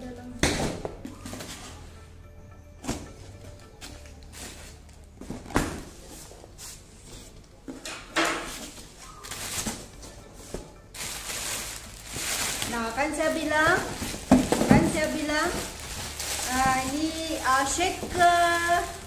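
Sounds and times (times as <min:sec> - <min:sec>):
cardboard flaps rustling: 0:08.5 - 0:19.0.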